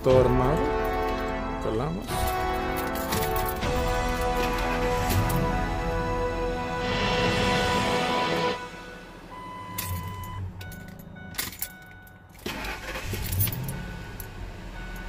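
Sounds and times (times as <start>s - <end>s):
car engine starting and idling: 0.0s - 15.0s
keys jangling: 0.2s - 1.5s, 2.1s - 5.5s, 9.8s - 14.3s.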